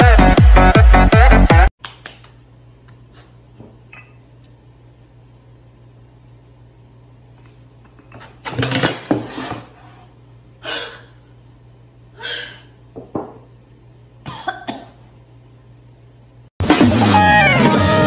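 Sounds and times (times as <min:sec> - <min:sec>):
woman coughing: 0:14.3 - 0:15.1.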